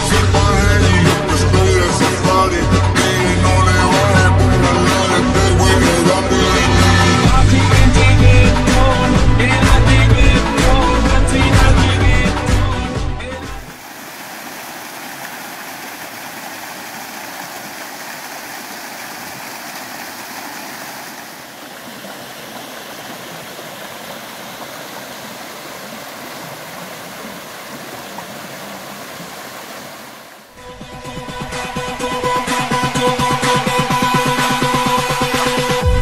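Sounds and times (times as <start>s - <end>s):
rushing water: 13.4s - 30.6s.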